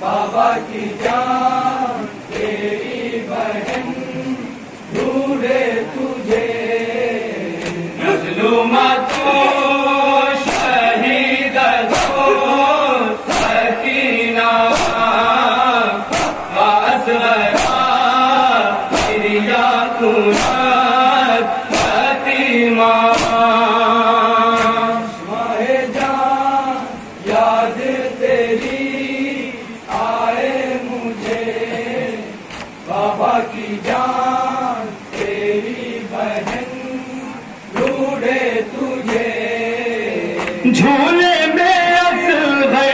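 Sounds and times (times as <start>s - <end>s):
men chanting a lament in chorus: 0.0s - 42.9s
chest beating slaps: 16.1s - 16.6s, 17.5s - 17.9s, 18.9s - 19.2s, 21.7s - 22.0s.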